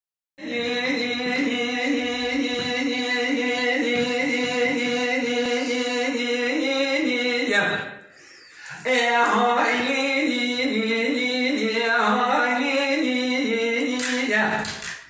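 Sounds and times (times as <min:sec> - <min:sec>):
man singing unaccompanied: 0:00.4 - 0:08.0, 0:08.7 - 0:14.9.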